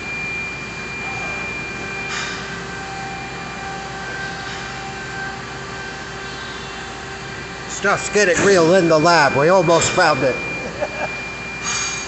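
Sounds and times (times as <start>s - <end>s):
machinery hum: 0.0s - 12.0s.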